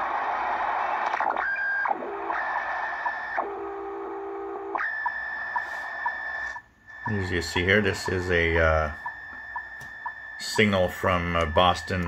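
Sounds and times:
heterodyne tones: 0.0 - 12.0
high radio whistle: 4.8 - 12.0
radio hiss and static: 5.4 - 12.0.

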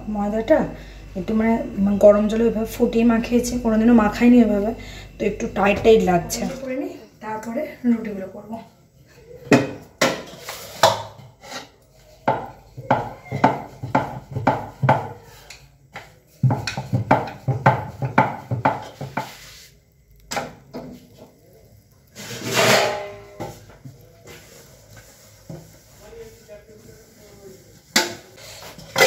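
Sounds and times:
dough scraping in steel bowl: 10.0 - 15.5, 16.2 - 21.4, 22.1 - 27.3
dough kneaded on wooden board: 10.0 - 22.6.

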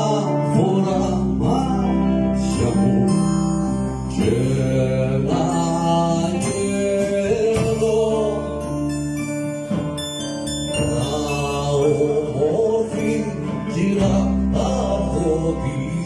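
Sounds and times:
electric guitars: 0.0 - 16.0
drum kit: 4.0 - 16.0.

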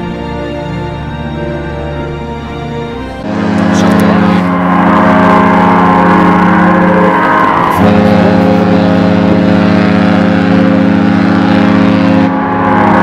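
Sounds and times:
ship horn blasts: 0.0 - 13.0.

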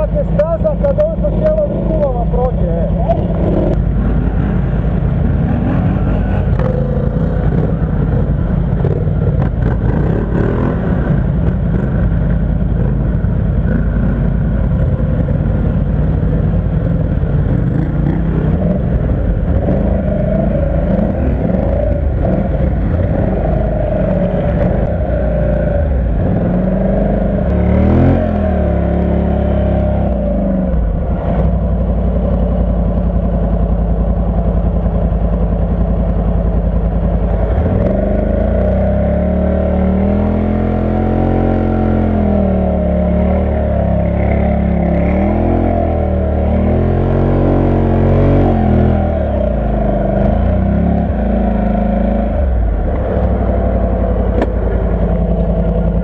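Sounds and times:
quad bike engines revving: 0.0 - 56.0.

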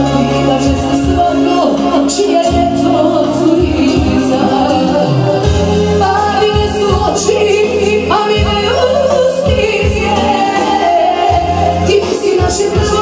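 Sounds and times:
electronic keyboard backing: 0.0 - 13.0
woman singing into microphone: 0.0 - 13.0.

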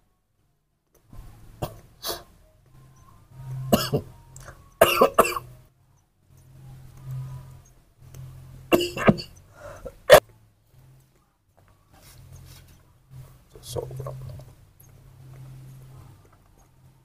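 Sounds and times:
low steady hum: 0.0 - 17.0
person coughing and throat clearing: 1.6 - 2.2, 3.7 - 4.1, 4.8 - 5.5, 8.7 - 10.2.

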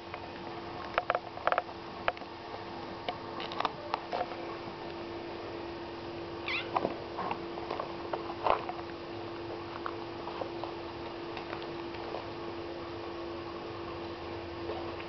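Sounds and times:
steady hum: 0.0 - 15.0
kittens mewing: 6.4 - 6.8.

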